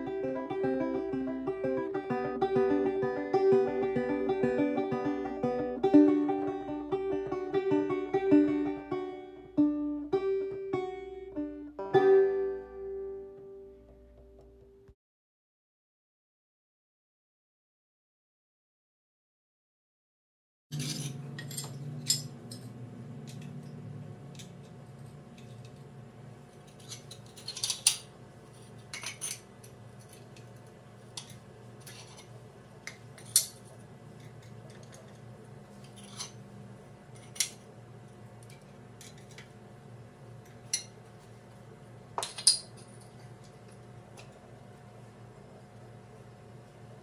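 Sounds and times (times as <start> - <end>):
steady low hum: 20.8 - 47.0.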